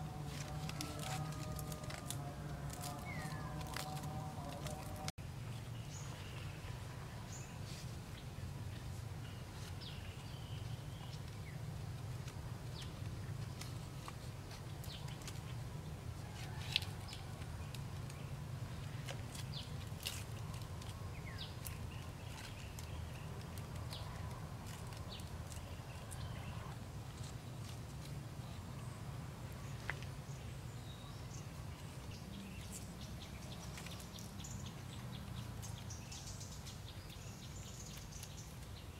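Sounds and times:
bamboo clicks and rustles: 0.0s - 38.9s.

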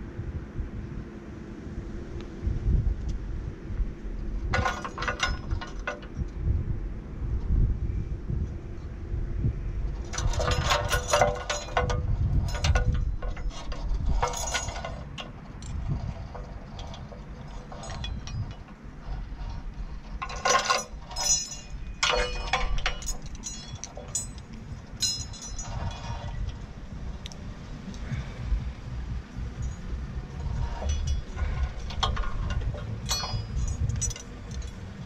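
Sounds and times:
low rumble: 0.0s - 35.0s
metallic clinking and rattling: 4.2s - 6.3s, 9.9s - 35.0s.

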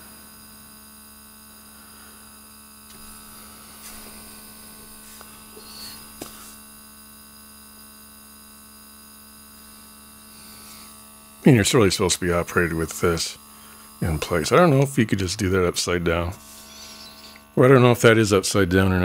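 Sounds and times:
air pump humming: 0.0s - 17.9s.

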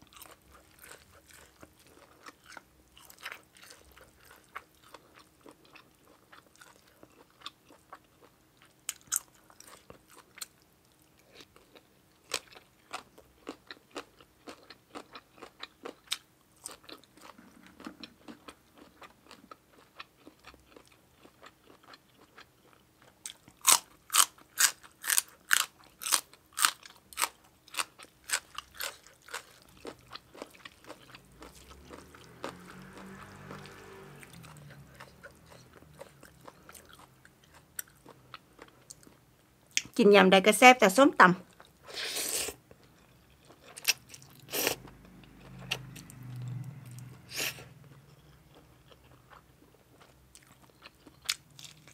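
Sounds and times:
wet chewing: 0.0s - 10.6s, 11.2s - 39.9s, 41.5s - 51.9s
crisp vegetable crunches: 23.2s - 31.5s.

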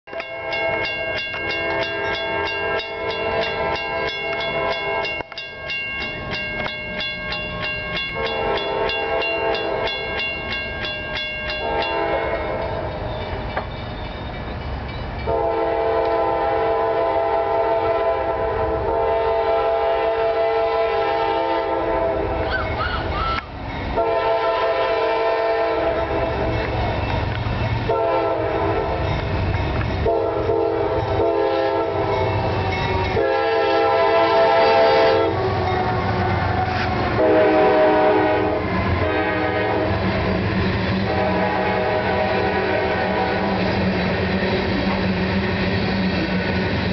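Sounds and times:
crossing bell dinging: 0.1s - 15.8s, 22.5s - 25.0s, 25.8s - 36.1s
train cars rumbling past: 0.1s - 46.9s
locomotive air horn blasts: 8.1s - 10.1s, 11.6s - 12.8s, 15.3s - 22.6s, 23.9s - 26.6s, 27.9s - 29.1s, 30.0s - 32.3s, 33.1s - 36.0s, 36.6s - 40.2s, 41.0s - 43.7s.

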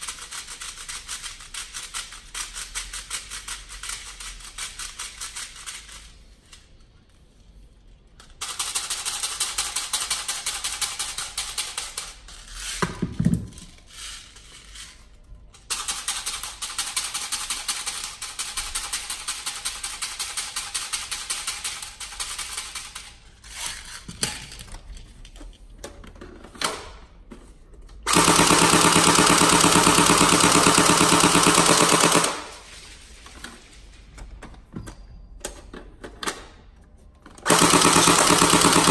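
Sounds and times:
airsoft shotgun firing full-auto: 28.1s - 32.6s, 37.4s - 38.9s.

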